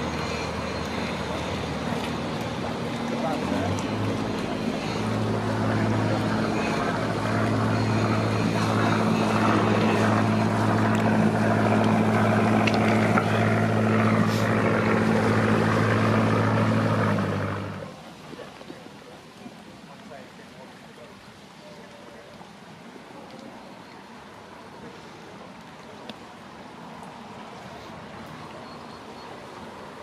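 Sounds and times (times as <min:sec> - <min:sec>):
boat engine droning: 0:00.0 - 0:18.6
propeller churning water: 0:00.0 - 0:30.0.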